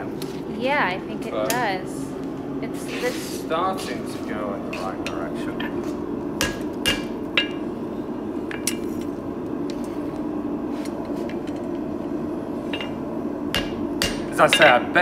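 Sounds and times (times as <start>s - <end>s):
steady low hum: 0.0s - 15.0s
hammer striking metal on anvil: 6.4s - 7.6s, 12.7s - 14.9s.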